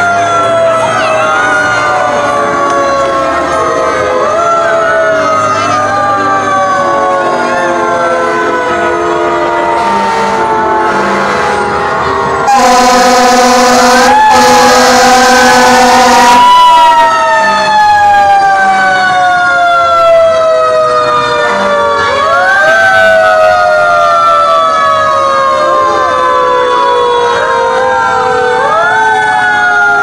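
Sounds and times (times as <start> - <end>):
fire truck siren wailing: 0.0 - 30.0
air horn blast: 9.7 - 11.9, 12.5 - 16.5.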